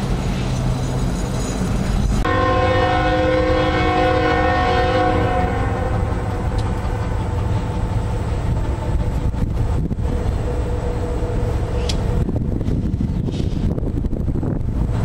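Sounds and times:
freight train rumble: 0:00.0 - 0:15.0
locomotive air horn: 0:02.2 - 0:07.4.

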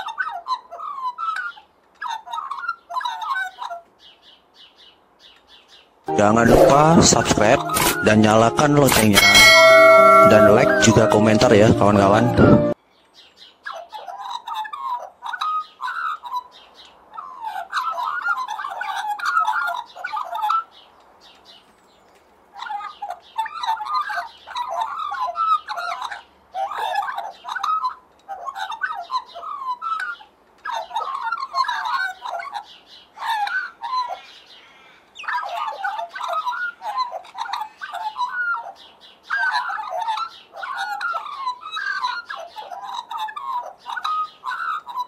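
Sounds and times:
magpie warbling song: 0:06.1 - 0:12.8.

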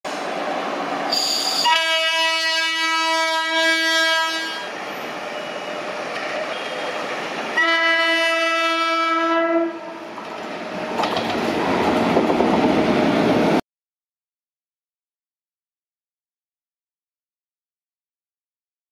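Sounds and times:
passing train running noise: 0:00.1 - 0:13.6
locomotive horn blasts: 0:01.6 - 0:04.7, 0:07.6 - 0:10.0.

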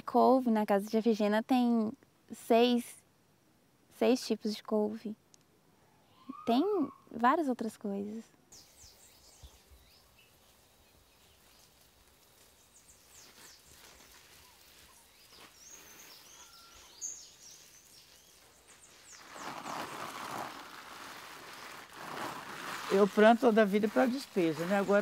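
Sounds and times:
small birds chirping: 0:05.8 - 0:25.0
garden hose spraying water: 0:08.6 - 0:25.0.

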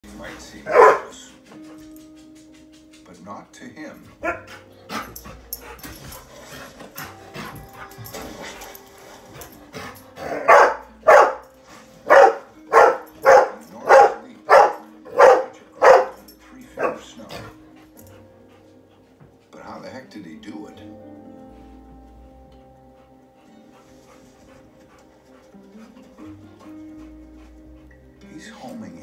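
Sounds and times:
dog barking: 0:00.7 - 0:01.3, 0:04.2 - 0:05.8, 0:10.1 - 0:17.6.

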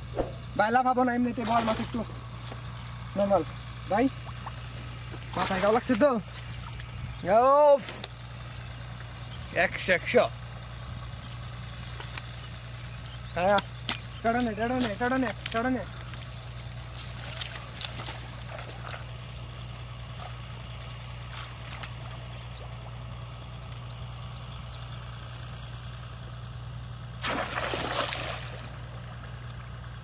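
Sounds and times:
steady low hum: 0:00.0 - 0:30.0
water splashing: 0:04.1 - 0:07.0, 0:27.2 - 0:29.0
steps in wet mud: 0:04.1 - 0:07.1, 0:11.8 - 0:23.9.

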